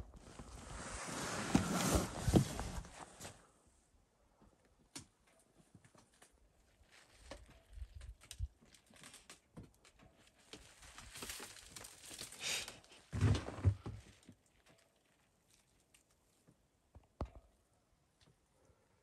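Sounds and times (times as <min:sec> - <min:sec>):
spruce needles rustling: 0:06.6 - 0:09.4, 0:10.2 - 0:13.0, 0:14.1 - 0:16.4.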